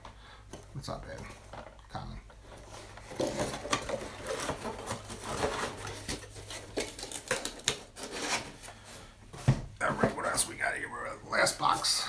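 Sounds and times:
cardboard boxes being handled: 0:02.5 - 0:10.2.

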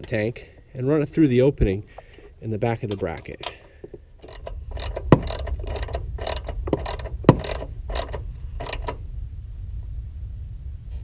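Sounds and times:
socket ratchet clicking: 0:04.2 - 0:09.0
sharp knocks: 0:04.3 - 0:09.0.

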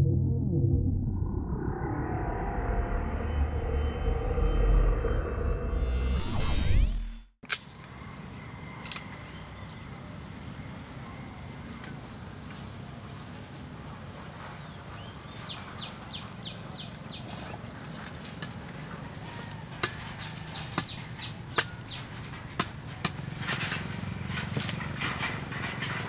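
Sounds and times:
footsteps on dry ground: 0:12.5 - 0:21.2.

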